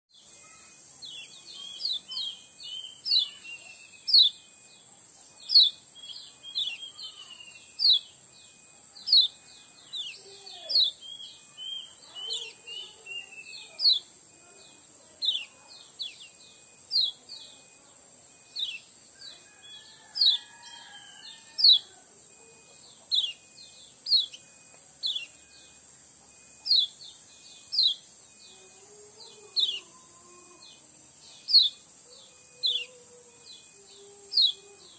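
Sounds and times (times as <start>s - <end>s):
bird chirping: 0.1s - 34.9s
soft bird twittering: 0.2s - 30.0s.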